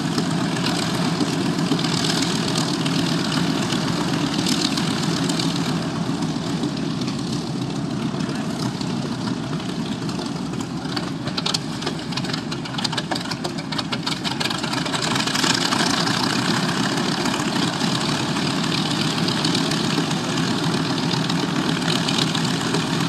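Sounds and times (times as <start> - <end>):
aircraft engine rumble: 0.0 - 23.0.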